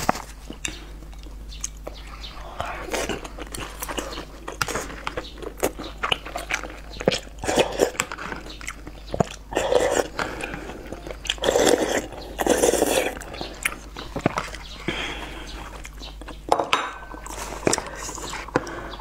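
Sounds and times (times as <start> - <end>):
chewing with wet smacks: 0.0 - 16.5
noodles being slurped: 2.6 - 14.6.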